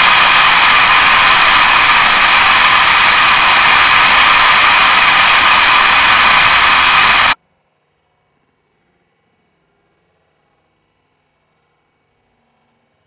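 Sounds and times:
static-like hiss: 0.0s - 7.4s.

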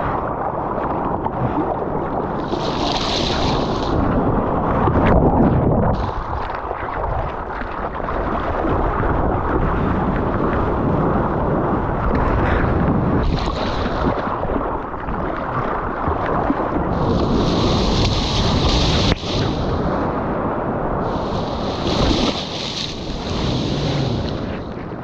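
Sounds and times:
wind and rushing water: 0.0s - 25.0s
whitewater spray hiss: 21.1s - 24.4s.

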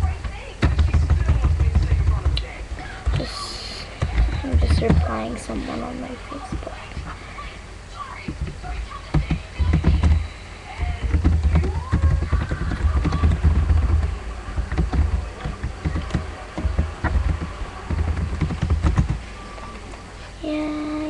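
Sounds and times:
typing on computer keyboard: 9.1s - 10.2s, 10.8s - 19.2s.

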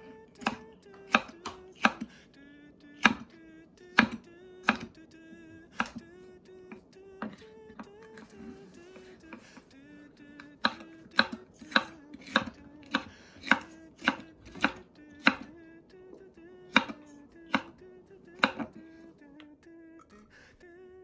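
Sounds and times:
knife chopping on wooden board: 0.4s - 2.1s, 4.0s - 4.9s, 10.6s - 15.5s, 16.7s - 17.7s, 18.4s - 18.7s.

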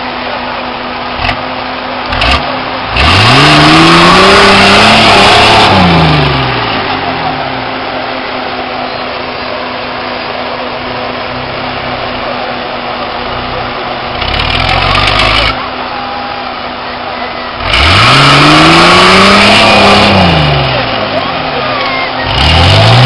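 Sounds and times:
diesel engine revving under load: 0.0s - 23.0s.

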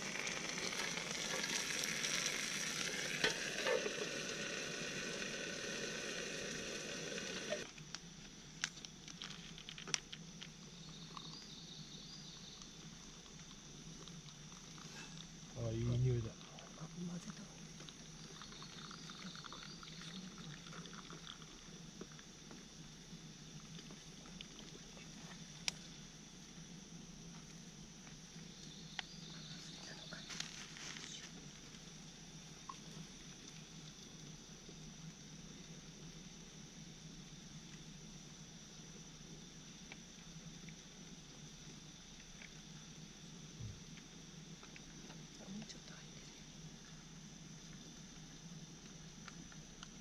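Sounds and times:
coffee trickling into cup: 0.0s - 7.6s, 17.3s - 22.2s
high insect drone: 0.0s - 50.0s.

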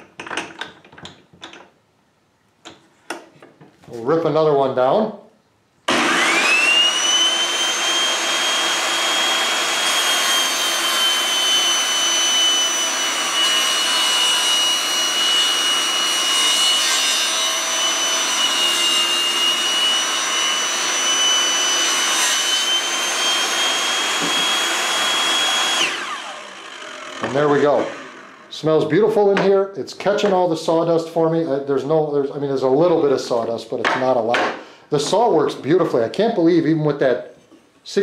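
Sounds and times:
table saw whine: 5.9s - 28.8s.

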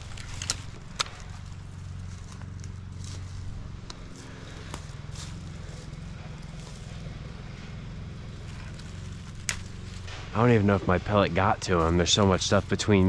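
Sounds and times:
footsteps crunching through dry leaves: 0.0s - 13.0s
steady low rumble: 0.0s - 13.0s
faint twig snaps: 8.5s - 10.4s.

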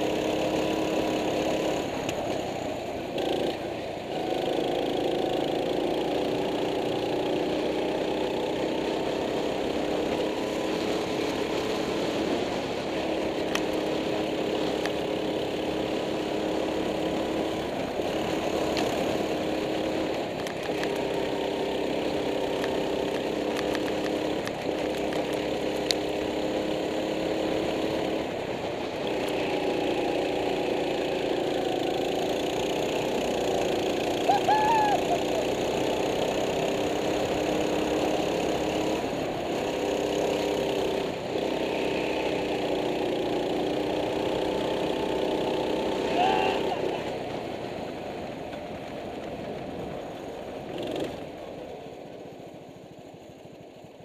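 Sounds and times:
go-kart engine running hard: 0.0s - 54.0s.

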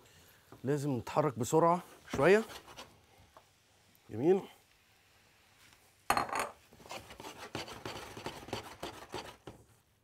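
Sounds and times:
utensil scraping a wok: 2.1s - 3.0s, 6.7s - 9.6s.

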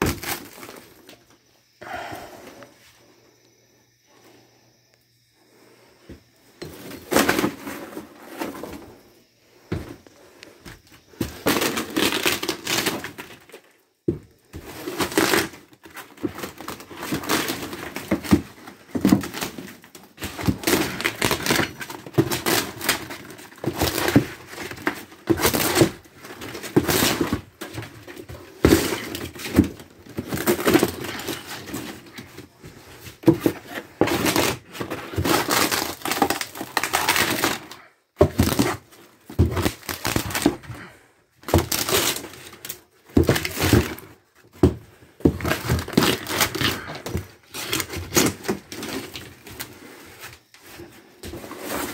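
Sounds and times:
wood paneling splintering and tearing: 11.1s - 32.3s, 33.2s - 49.9s.

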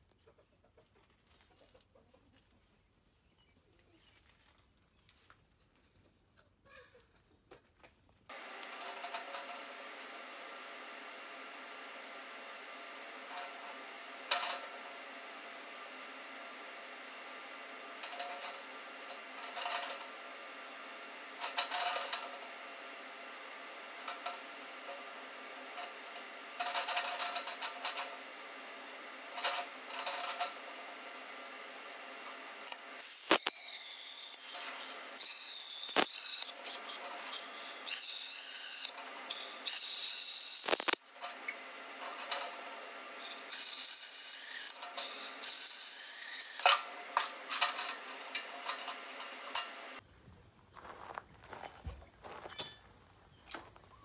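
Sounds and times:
plasma cutter hissing: 32.6s - 41.1s.

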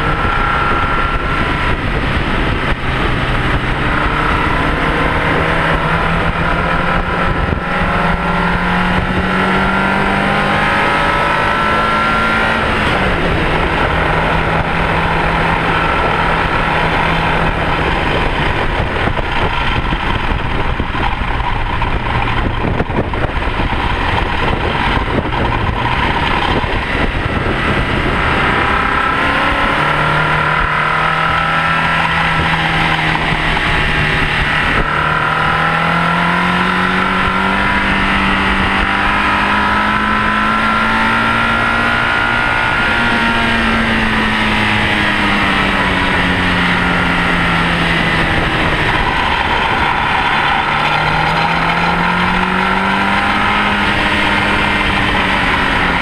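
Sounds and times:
car engine revving: 0.0s - 56.0s
road noise: 0.0s - 56.0s
wind noise: 0.0s - 56.0s.

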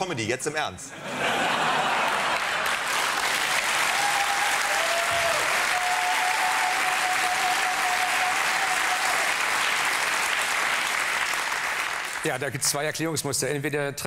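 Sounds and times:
audience applauding: 1.4s - 12.4s.

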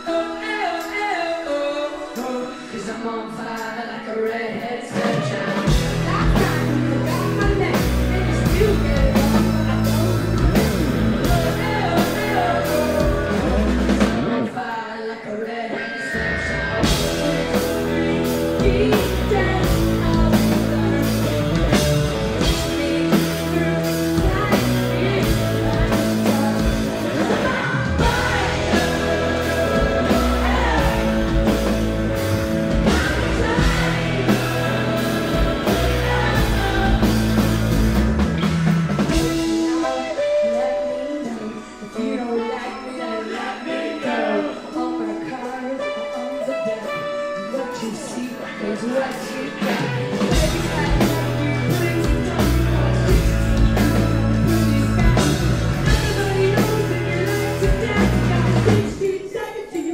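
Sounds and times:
drums: 0.0s - 14.8s, 15.5s - 42.5s, 45.8s - 59.4s
electric guitar: 0.0s - 59.2s
person singing: 0.0s - 59.9s
bass guitar: 5.2s - 14.5s, 15.8s - 41.6s, 49.6s - 59.0s.

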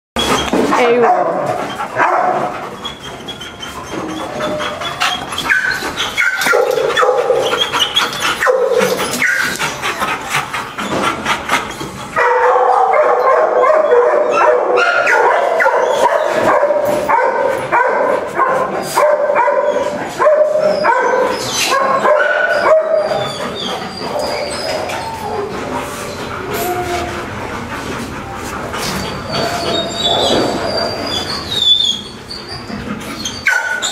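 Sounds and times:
dogs barking: 0.3s - 33.9s.

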